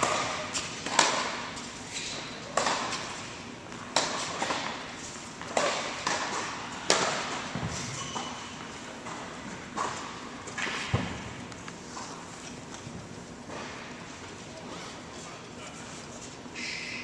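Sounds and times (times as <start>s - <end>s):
racquet hitting tennis ball: 0.0s - 8.4s.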